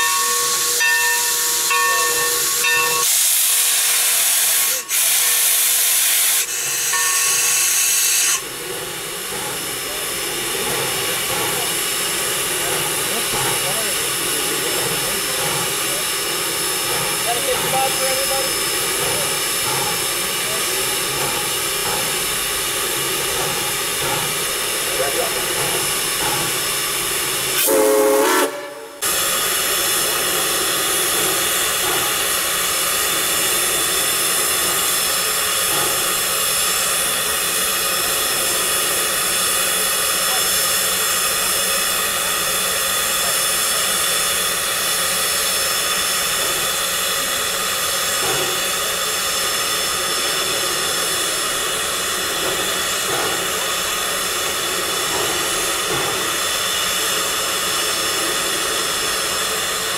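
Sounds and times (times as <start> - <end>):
steam locomotive hissing: 0.0 - 59.9.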